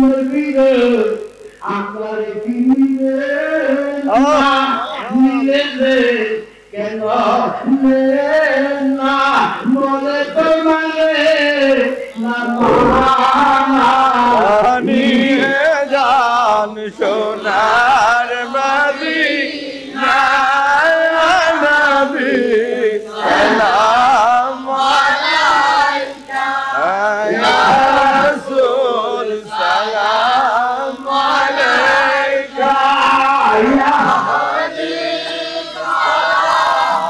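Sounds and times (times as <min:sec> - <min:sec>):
man singing into a microphone: 0:00.0 - 0:19.2, 0:20.2 - 0:24.8, 0:26.8 - 0:31.1.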